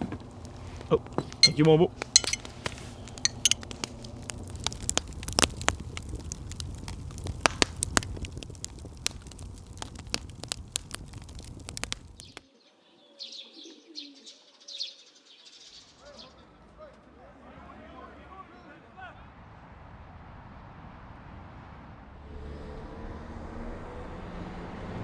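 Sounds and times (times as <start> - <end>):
birds chirping: 0.0 - 3.8, 11.8 - 16.6
campfire crackling and popping: 0.0 - 12.5.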